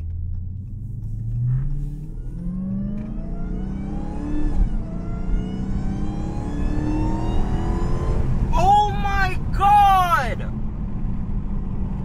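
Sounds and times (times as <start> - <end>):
supercharger whine: 0.0 - 8.6
car engine revving hard: 1.2 - 8.5.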